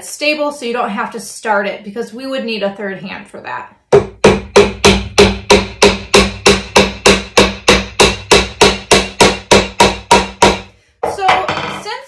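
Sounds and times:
hammer striking nail into wood: 3.9 - 10.7.

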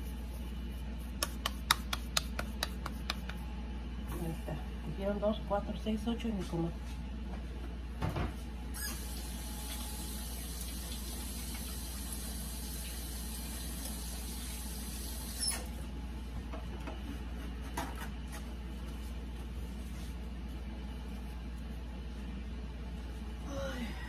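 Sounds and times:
steady low hum: 0.0 - 8.7
kitchen faucet running: 8.8 - 15.6.

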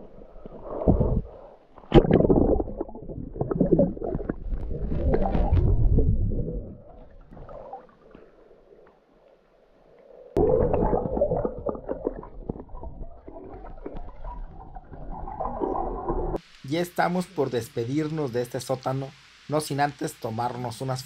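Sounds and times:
water sloshing and gurgling: 0.0 - 16.4.

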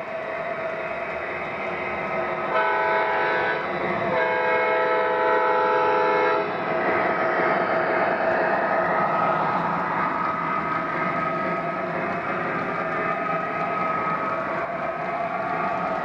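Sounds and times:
model train running noise: 0.0 - 16.0
model locomotive horn blasts: 2.5 - 6.5.

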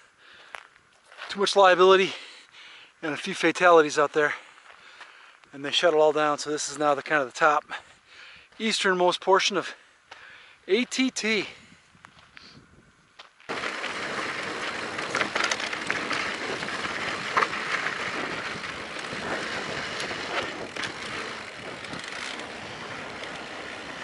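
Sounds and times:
bike tyres on loose dirt: 0.1 - 24.0
bike clicking and rattling: 13.5 - 24.0.

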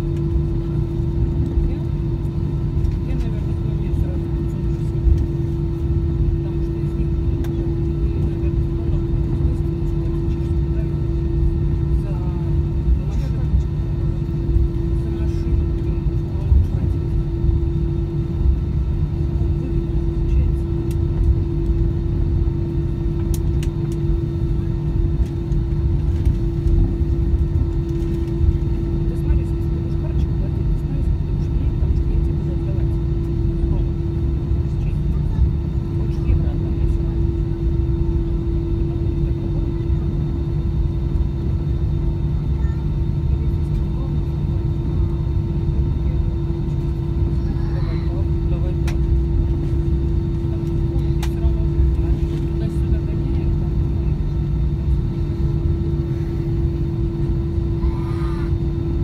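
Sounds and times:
jet engines rumbling: 0.0 - 59.0
steady hum: 0.0 - 59.0.

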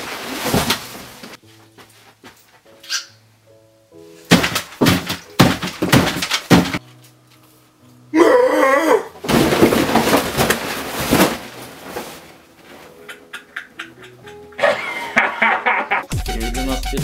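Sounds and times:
loud thuds: 4.3 - 6.8, 9.2 - 12.1
table with plates crashing: 4.3 - 6.8
person yelling: 8.2 - 9.1.

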